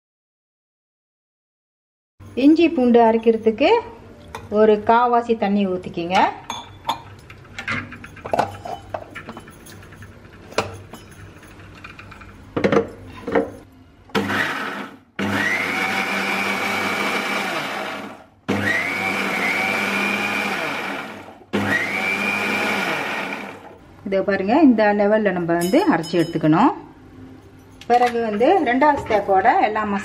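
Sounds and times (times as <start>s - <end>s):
mixer grinder motor whining: 14.1s - 23.8s.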